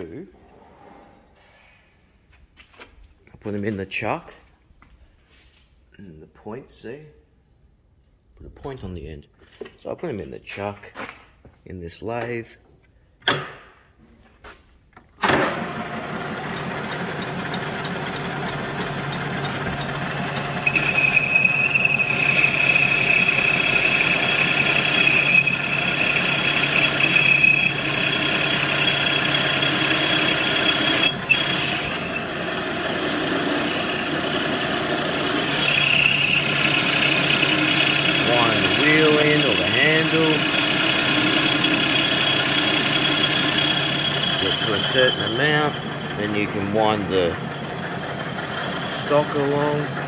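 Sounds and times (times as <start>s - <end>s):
metal lathe humming: 15.5s - 50.0s
high steady cutting tone: 15.8s - 50.0s.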